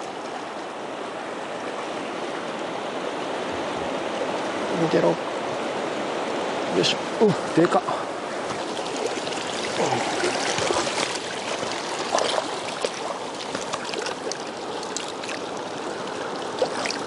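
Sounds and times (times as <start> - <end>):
river rapids rushing: 0.0 - 17.0
water splashing: 8.2 - 17.0.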